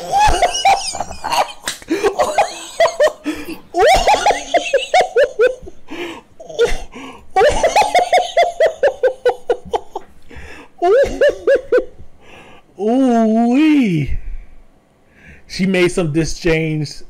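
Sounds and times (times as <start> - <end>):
person laughing heartily: 0.0 - 12.1.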